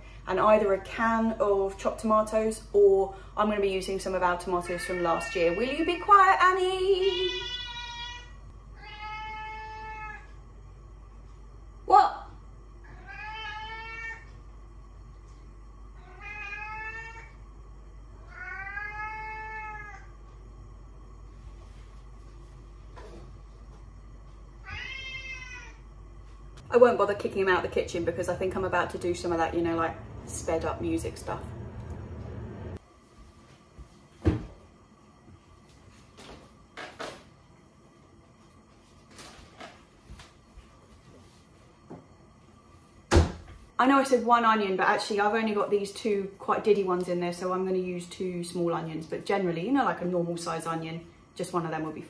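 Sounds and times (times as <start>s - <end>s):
cat meowing: 4.7s - 6.1s, 7.0s - 10.3s, 12.8s - 14.3s, 16.0s - 17.3s, 18.2s - 20.1s, 24.6s - 25.8s.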